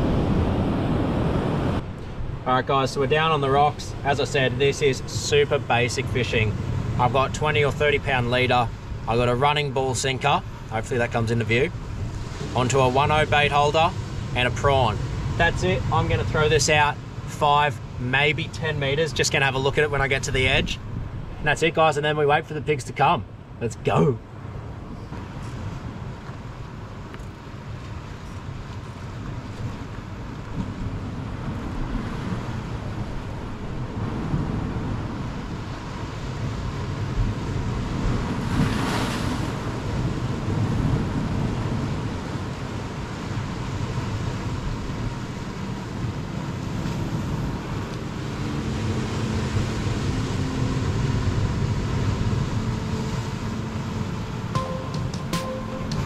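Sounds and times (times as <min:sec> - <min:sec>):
wind buffeting microphone: 0:00.0 - 0:02.5, 0:24.6 - 0:54.5
ocean surf over rocks: 0:00.0 - 0:56.0.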